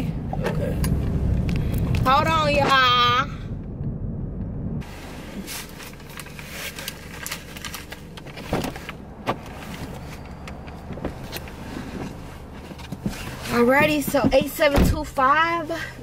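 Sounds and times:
car hum: 0.0 - 16.0
paper bag rustling: 4.9 - 10.3.

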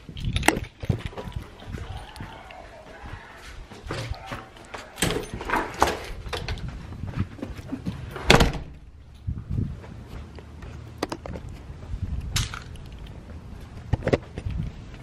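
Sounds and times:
footsteps on pavers: 0.0 - 8.2, 8.9 - 15.0
door slamming: 3.9 - 6.6, 8.2 - 8.9.

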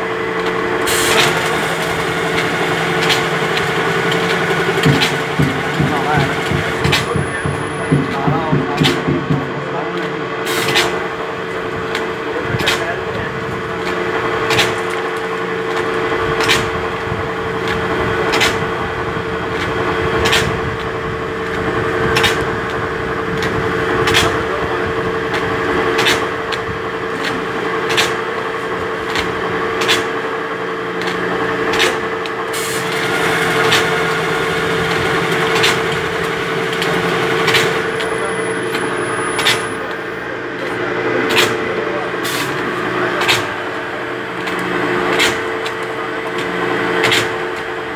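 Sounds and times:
machine motor hum: 0.0 - 47.9
sharp machine click: 37.5 - 40.0.

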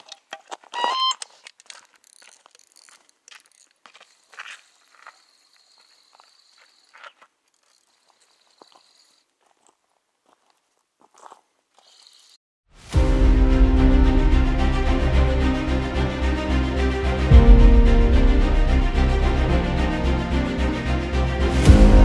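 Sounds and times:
footsteps crunching on stony ground: 0.0 - 12.4
electronic bite alarm beeping: 0.8 - 1.2.

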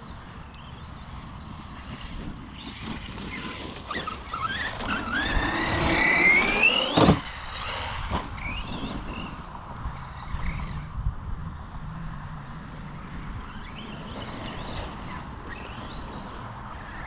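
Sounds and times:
electric motor whining: 1.2 - 9.4.

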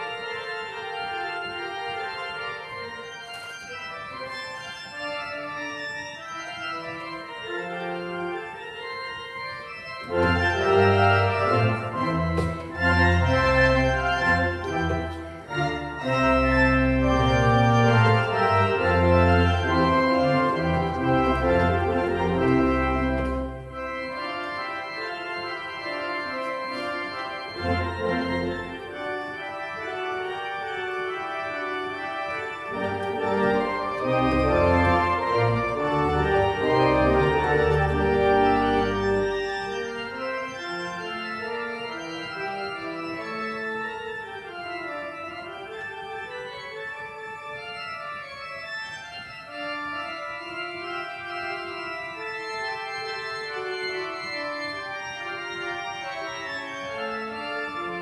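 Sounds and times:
church organ chords: 0.0 - 58.0
deep organ pedal bass: 9.8 - 26.2, 26.8 - 46.3.

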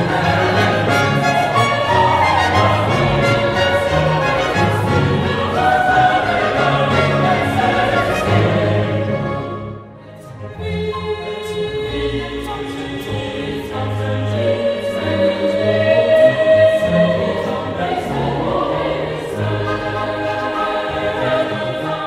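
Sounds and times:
choir singing long notes: 0.0 - 22.0.

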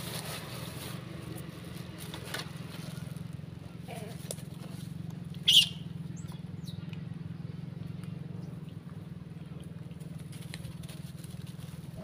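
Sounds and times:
monkey squealing: 5.4 - 5.8.

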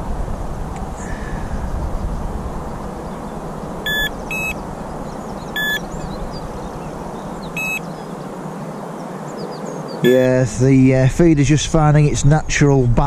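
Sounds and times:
bite alarm beeps: 3.9 - 4.6, 5.6 - 5.8, 7.6 - 7.8, 10.0 - 10.4.

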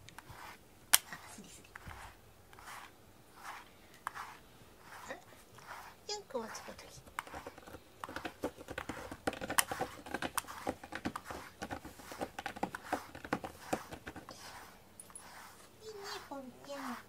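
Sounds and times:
brush scratching through cat fur: 0.0 - 17.0.

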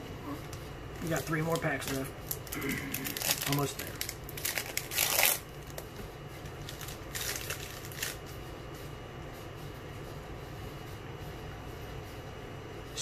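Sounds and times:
faint steady hum: 0.0 - 13.0
card pack wrapper crinkling and tearing: 1.0 - 8.2.

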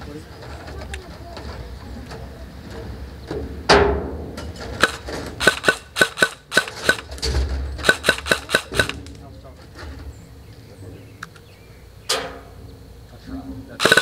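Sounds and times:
loud crack with ringing: 3.7 - 9.2, 13.8 - 14.0
airsoft gun shots: 4.8 - 7.2, 7.8 - 9.1, 13.8 - 14.0.

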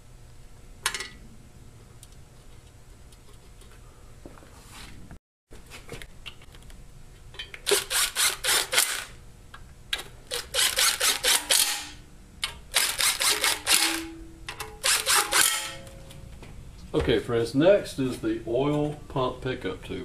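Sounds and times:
ratchet wrench clicking: 7.7 - 9.1, 10.3 - 11.9, 12.7 - 14.0, 14.8 - 15.8.

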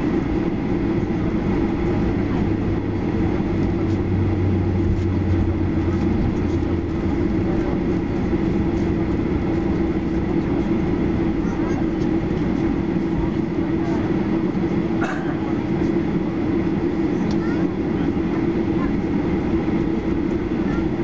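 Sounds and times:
jet engines humming: 0.0 - 21.0
wheels rumbling on pavement: 1.6 - 12.2.

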